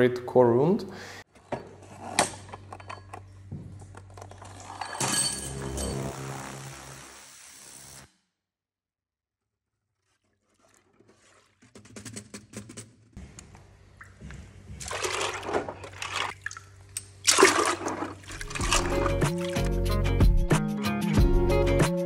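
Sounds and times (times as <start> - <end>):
water sloshing and splashing: 9.9 - 12.0, 14.0 - 19.8.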